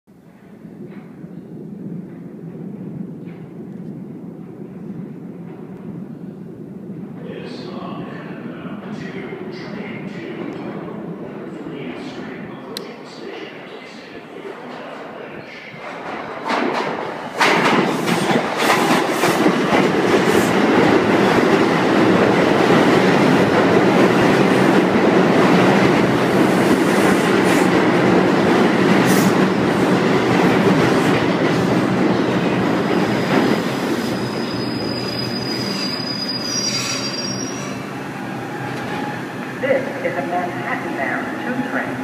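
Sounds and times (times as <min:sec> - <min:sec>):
subway train wheels rumbling on rail: 0:00.1 - 0:42.0
train brakes squealing: 0:34.0 - 0:39.3.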